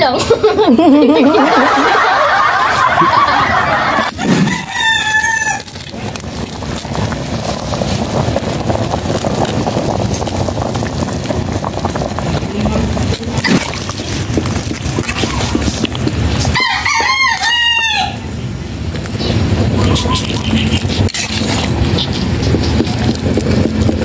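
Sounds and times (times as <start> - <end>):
boys laughing: 0.0 - 4.6
pot boiling with bubbling hiss: 0.8 - 24.0
rooster crowing: 2.0 - 5.9, 16.5 - 18.3.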